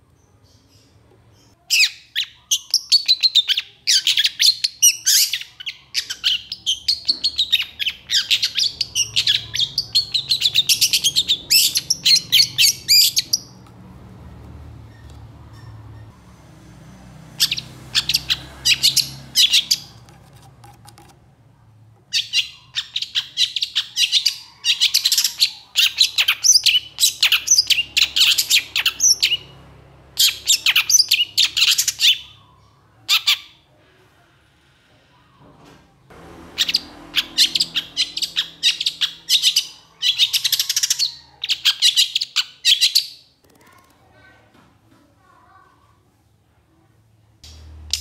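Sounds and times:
bird singing harsh chattering notes: 0.5s - 13.6s, 17.4s - 20.1s, 22.1s - 29.6s, 36.5s - 43.2s.

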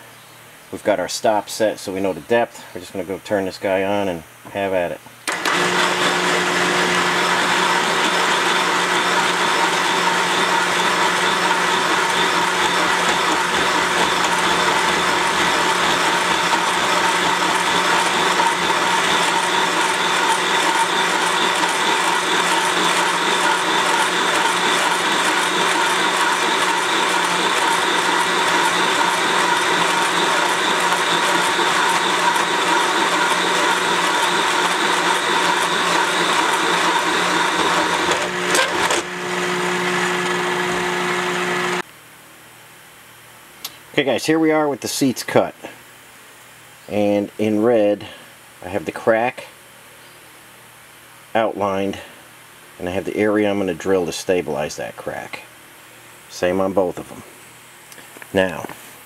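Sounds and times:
machine cutter boring metal: 5.3s - 41.8s.

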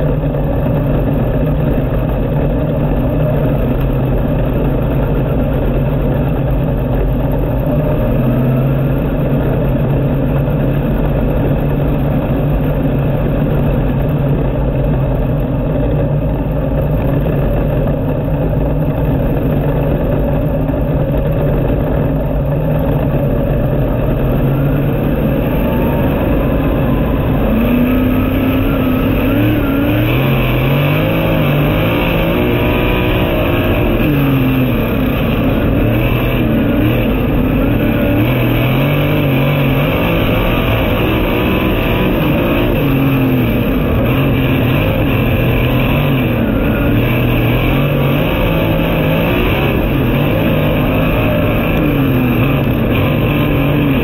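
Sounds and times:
race car engine revving: 0.0s - 54.0s.

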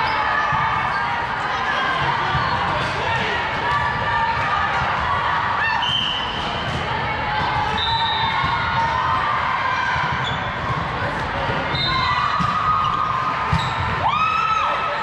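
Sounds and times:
murmur of spectators: 0.0s - 15.0s
volleyball thumps: 9.9s - 14.1s
sneakers squeaking on floor: 10.1s - 10.8s, 11.6s - 14.0s.

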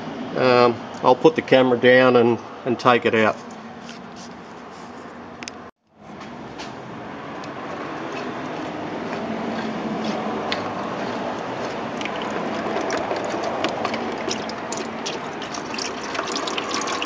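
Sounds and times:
oil trickling splashing: 11.6s - 17.0s.

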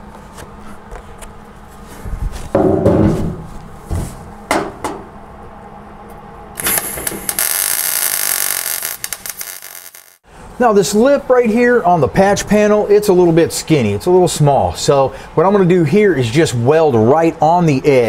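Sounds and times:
board knocking on sheet metal: 2.6s - 3.5s
welder arc crackling: 6.6s - 10.2s.

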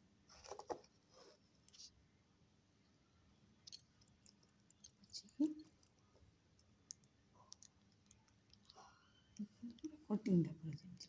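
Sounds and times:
wet clicks and squishes of batter: 3.6s - 11.0s.

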